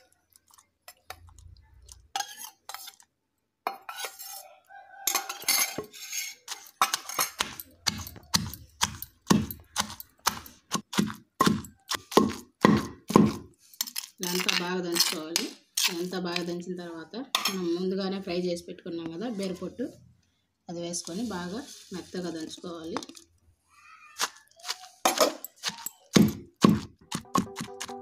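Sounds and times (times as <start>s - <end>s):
pestle pounding in stone mortar: 7.4s - 13.5s, 25.7s - 28.0s.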